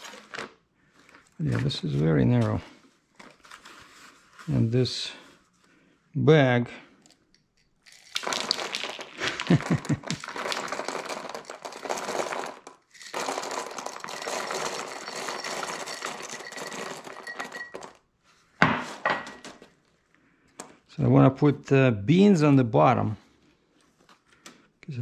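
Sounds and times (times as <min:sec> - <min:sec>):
plastic bag crinkling: 0:00.0 - 0:04.1, 0:07.8 - 0:18.0
grains pouring into bag: 0:07.9 - 0:18.0.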